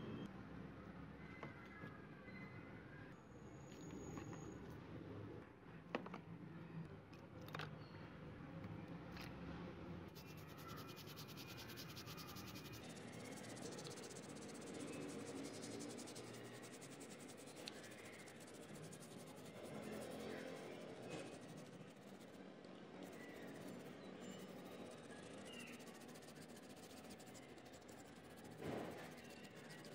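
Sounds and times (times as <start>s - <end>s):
toothbrush scrubbing metal: 10.2s - 22.3s, 23.0s - 29.9s.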